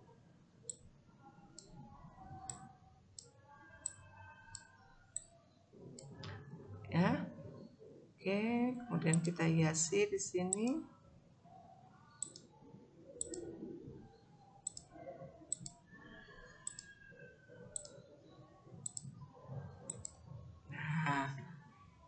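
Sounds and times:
computer mouse clicks: 2.4s - 5.3s, 9.1s - 9.4s, 10.5s - 10.8s, 12.2s - 12.5s, 13.2s - 13.5s, 14.6s - 15.8s, 16.6s - 17.0s, 17.7s - 18.0s, 18.8s - 19.2s, 19.8s - 20.2s.

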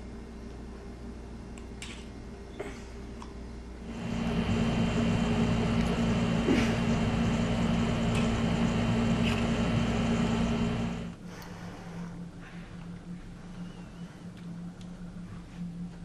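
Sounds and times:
mechanical hum: 0.0s - 16.0s.

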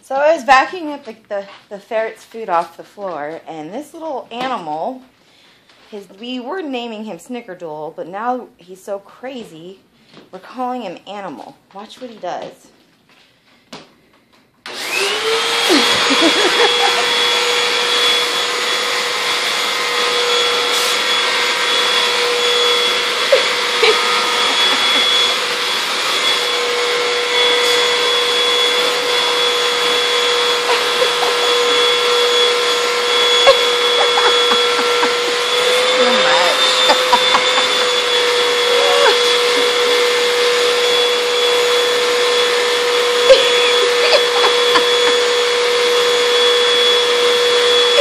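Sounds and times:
vacuum cleaner motor running: 14.7s - 48.0s.

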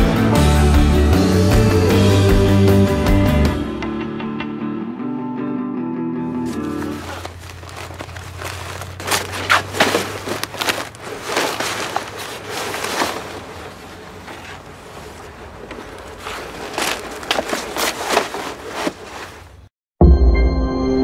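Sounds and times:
paper crumpling: 6.4s - 19.6s.

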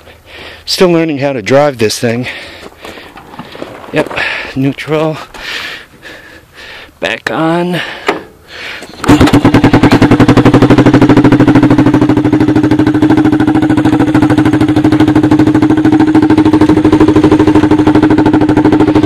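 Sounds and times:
engine starting and idling: 7.8s - 19.0s.

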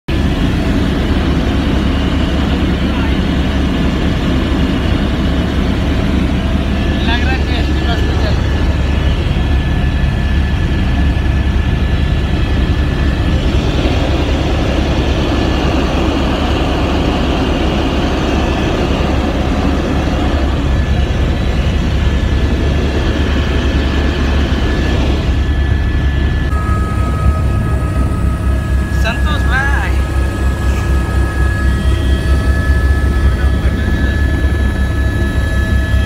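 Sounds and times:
helicopter engine and rotor drone: 0.1s - 36.0s
high whine: 0.1s - 36.0s.

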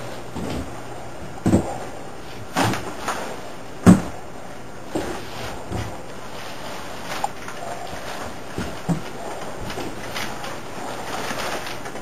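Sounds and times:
heavy thuds and bumps: 0.0s - 3.0s, 3.8s - 4.3s.

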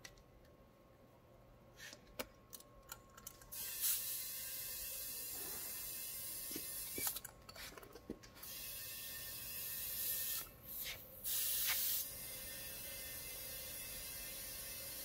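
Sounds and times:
compressed air hissing into tyre: 8.4s - 12.5s.

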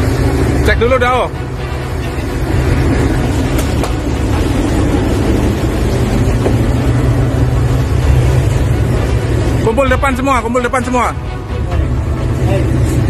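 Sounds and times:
boat engine running: 0.0s - 13.0s.

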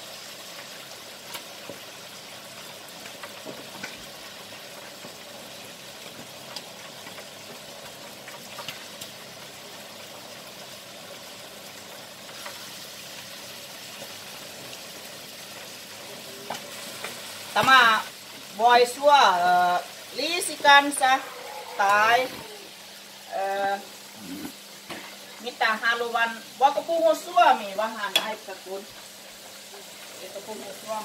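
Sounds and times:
food sizzling in a wok: 0.0s - 31.0s
spatula scraping a wok: 20.7s - 22.7s.

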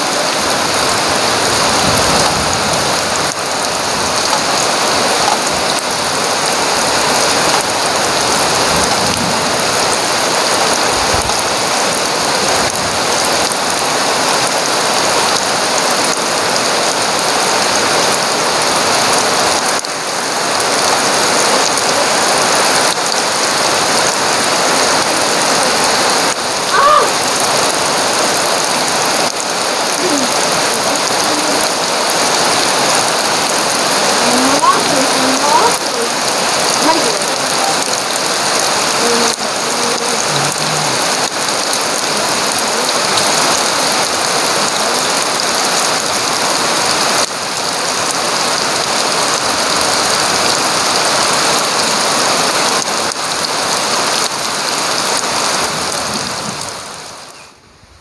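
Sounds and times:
heavy rain pouring: 0.0s - 58.0s
short pitched call: 40.2s - 41.2s.

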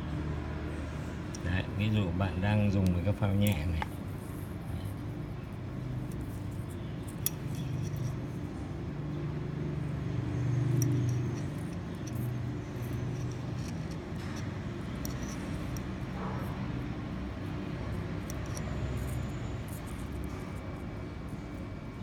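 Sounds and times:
small metal clicks: 6.1s - 8.4s, 10.5s - 16.1s, 17.9s - 20.6s.

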